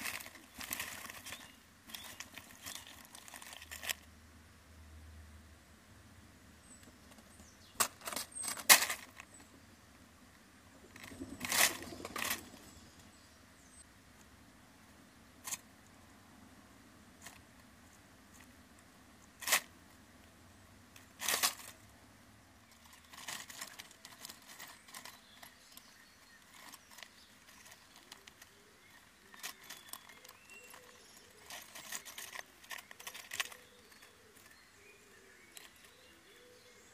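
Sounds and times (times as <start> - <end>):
dry leaves rustling and crackling: 0.0 - 4.1, 7.7 - 9.3, 10.8 - 13.0, 20.9 - 21.8, 22.6 - 34.6.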